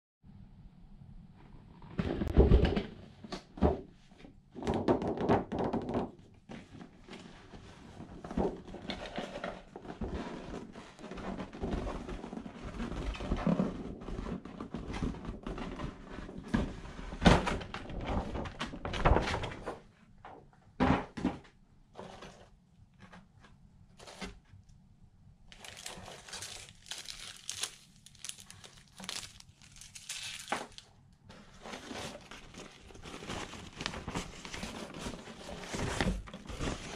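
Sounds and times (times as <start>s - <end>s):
hands rustling crinkle paper: 25.5s - 36.9s.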